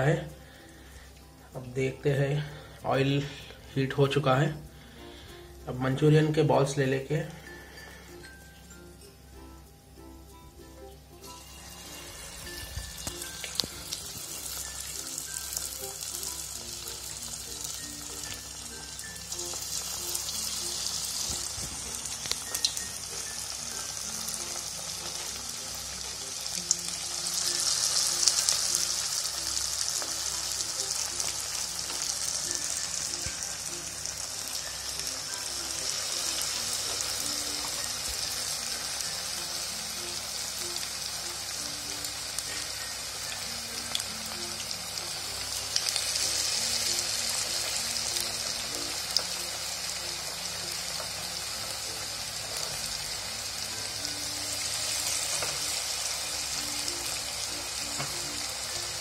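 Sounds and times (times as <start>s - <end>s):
food deep-frying in hot oil: 0.0s - 59.0s.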